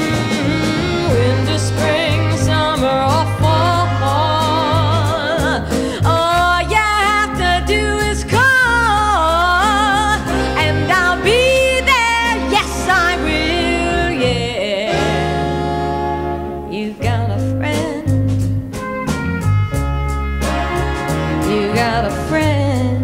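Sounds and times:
wavering lead melody: 0:00.0 - 0:05.7, 0:08.9 - 0:18.0
steady bass line: 0:00.0 - 0:23.0.

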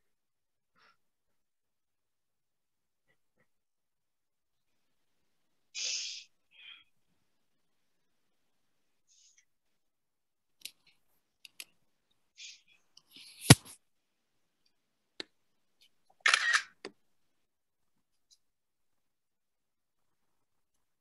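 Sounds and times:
small clicks and handling noises: 0:10.6 - 0:11.8.

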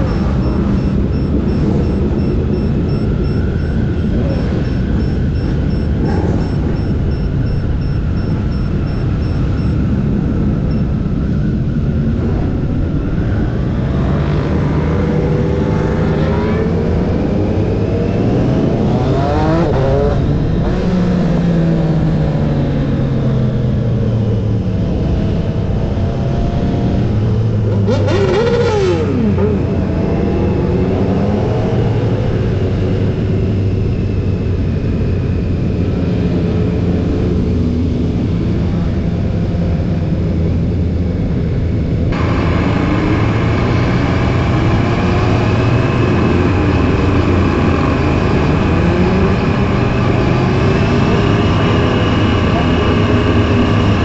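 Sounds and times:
motorcycle engine running: 0:00.0 - 0:13.1
motorcycle engines revving: 0:00.0 - 0:54.0.

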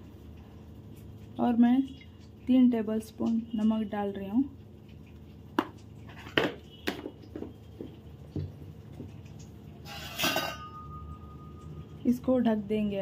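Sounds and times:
low steady hum: 0:00.0 - 0:13.0
faint steady ringing tone: 0:09.9 - 0:12.1.

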